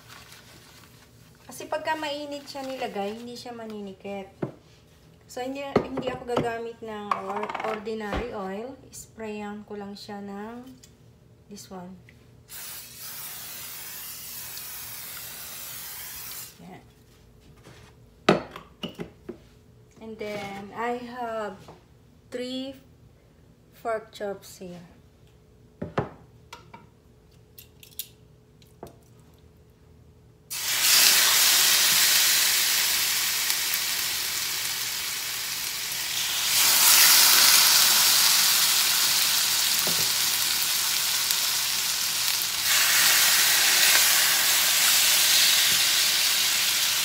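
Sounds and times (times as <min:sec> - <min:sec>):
meat sizzling in a skillet: 0:12.5 - 0:16.5, 0:30.5 - 0:47.0.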